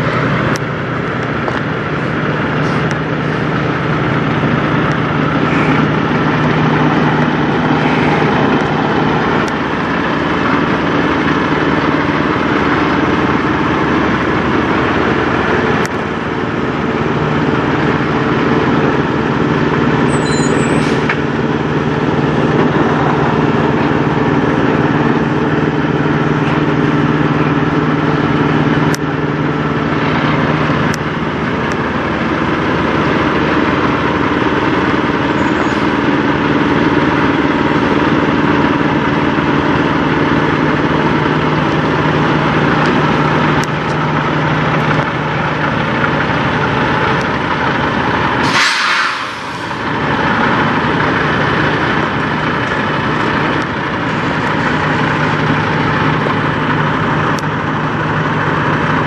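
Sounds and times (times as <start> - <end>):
diesel truck engines idling: 0.0 - 59.0
brief high squeak: 20.1 - 21.2, 35.4 - 36.0.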